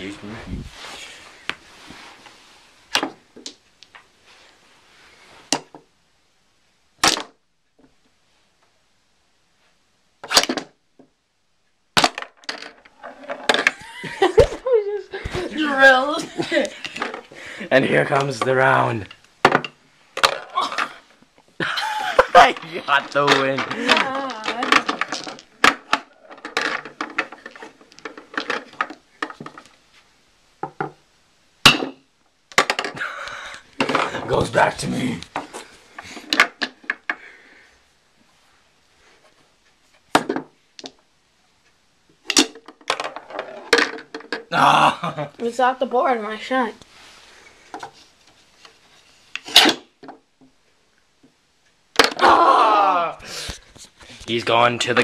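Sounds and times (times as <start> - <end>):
pool balls clacking: 12.0 - 14.6, 18.0 - 21.1, 22.0 - 29.8, 31.7 - 35.6, 42.2 - 44.5, 51.9 - 52.2
toy pool balls clicking: 22.4 - 29.7.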